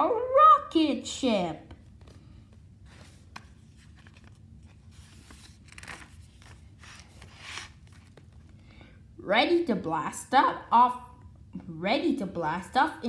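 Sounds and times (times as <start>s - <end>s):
book pages rustling: 1.7s - 8.9s.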